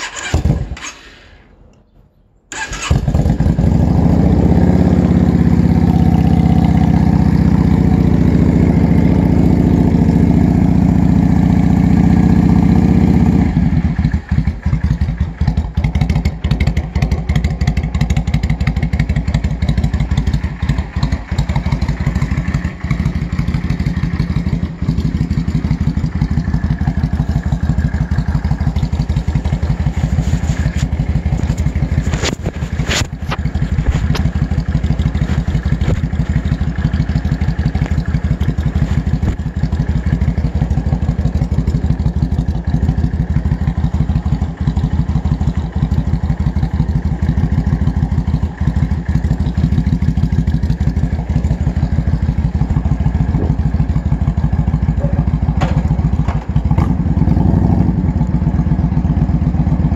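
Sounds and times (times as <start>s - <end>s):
motorcycle engine starting and idling: 0.0s - 59.9s.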